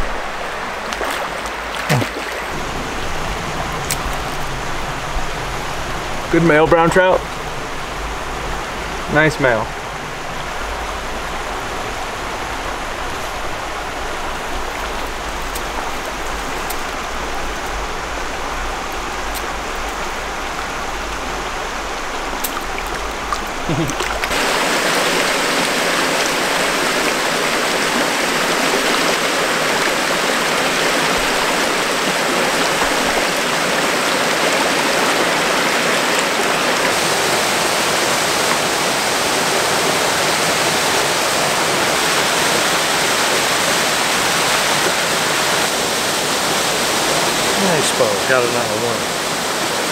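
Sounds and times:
mountain creek rushing: 0.0 - 49.9
waterfall pouring into pool: 20.8 - 49.9.

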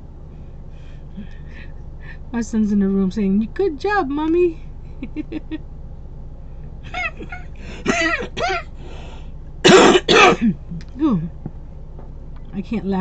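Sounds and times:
woman laughing: 5.0 - 5.6, 6.9 - 8.6
woman coughing harshly: 7.0 - 8.7, 9.6 - 10.6.

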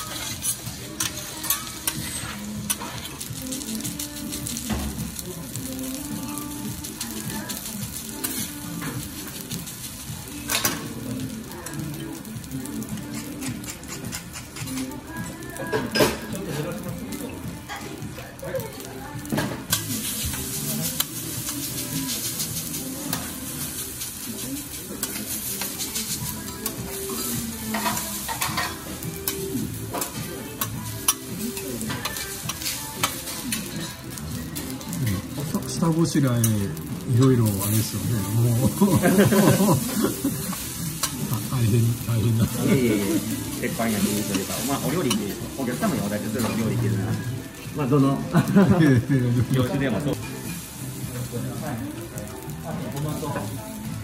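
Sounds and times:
metal spatula scraping and clacking: 0.0 - 3.2, 13.1 - 14.9
metal spatula scraping griddle: 0.0 - 3.8, 13.0 - 14.9, 19.7 - 30.2
rice sizzling on a griddle: 0.0 - 54.0.

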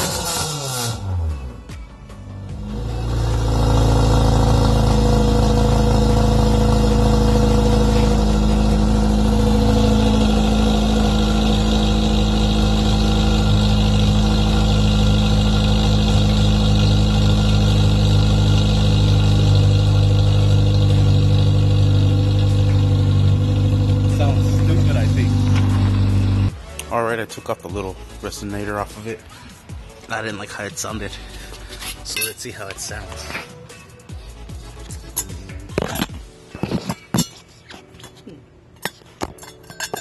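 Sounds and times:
car engine idling through exhaust: 2.6 - 26.5.

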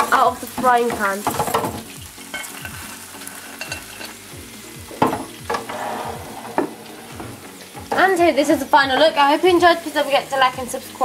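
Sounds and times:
hot oil sizzling: 0.0 - 11.0
fryer basket knocking: 0.6 - 2.0, 4.8 - 9.7.

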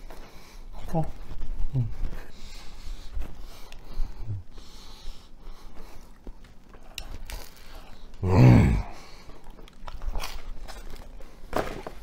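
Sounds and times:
noisy nose breathing: 0.0 - 9.7
man chewing: 1.9 - 11.5.

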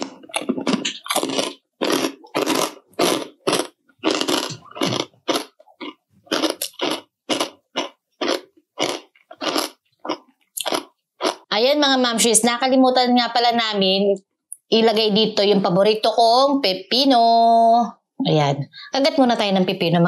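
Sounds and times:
dry crunching while chewing: 0.0 - 11.4.

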